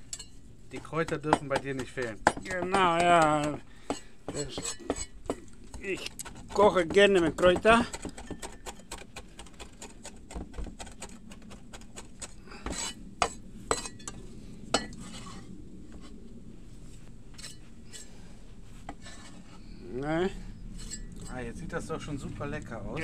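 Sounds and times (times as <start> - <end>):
utensils clinking against a bowl: 0.0 - 9.0.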